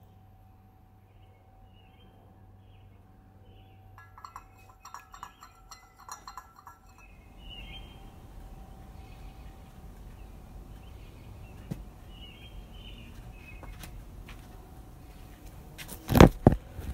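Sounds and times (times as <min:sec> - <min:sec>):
metal spoon clinking against glass: 0:04.0 - 0:07.8.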